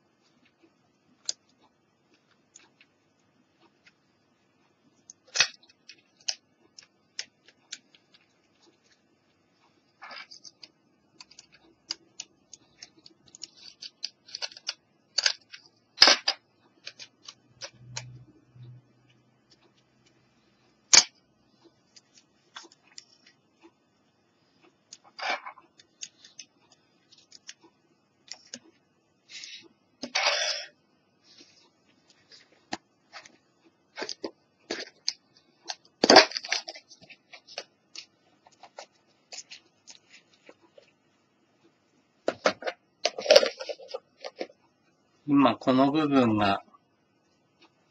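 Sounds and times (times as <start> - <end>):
plastic items clicking and rustling: 10.0 - 18.0, 25.0 - 27.6, 32.1 - 40.9, 42.2 - 44.6.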